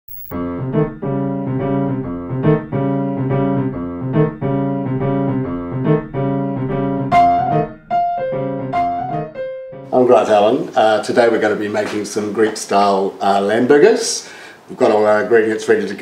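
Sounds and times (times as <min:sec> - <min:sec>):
sustained keyboard chords: 0:00.3 - 0:10.0.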